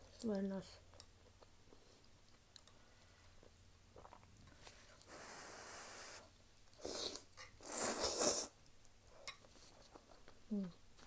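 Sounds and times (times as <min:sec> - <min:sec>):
quiet even hiss: 0:00.0 - 0:11.0
person slurping noodles: 0:06.8 - 0:08.6.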